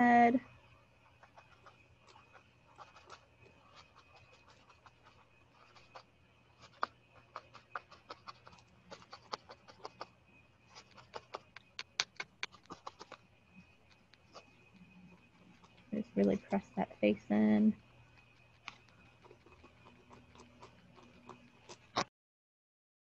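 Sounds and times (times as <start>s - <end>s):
felting needle clicking: 6.6s - 10.1s, 10.7s - 14.9s.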